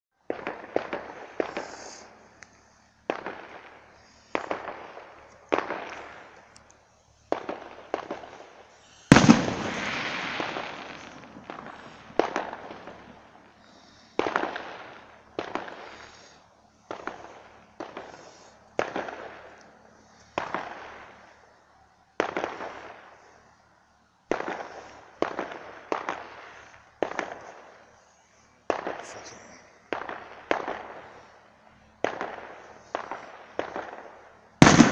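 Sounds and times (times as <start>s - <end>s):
sharp echoing bangs: 7.3s - 19.4s, 34.6s - 34.9s.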